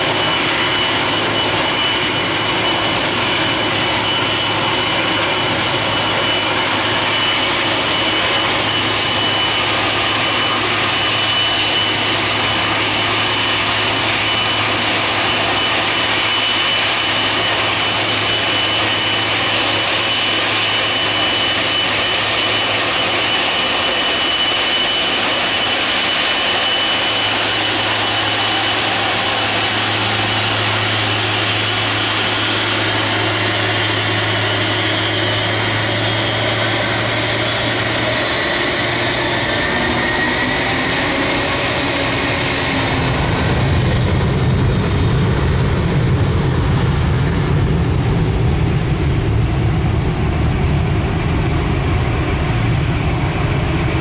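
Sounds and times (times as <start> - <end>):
jet engines rumbling and whining: 0.0 - 54.0.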